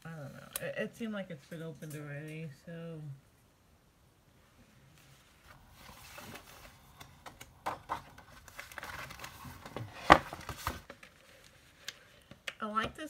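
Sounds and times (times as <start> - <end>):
paper rustling and sliding: 5.0 - 7.2, 7.9 - 11.9.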